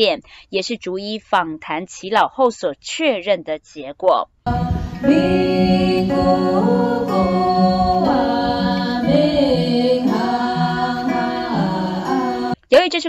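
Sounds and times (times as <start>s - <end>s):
acoustic guitar: 4.5s - 12.6s
women singing together: 4.5s - 12.6s.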